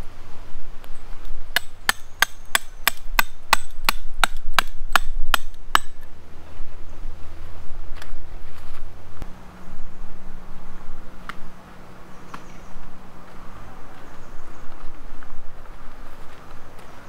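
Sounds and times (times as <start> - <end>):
hammer striking metal tent peg: 1.6 - 6.0.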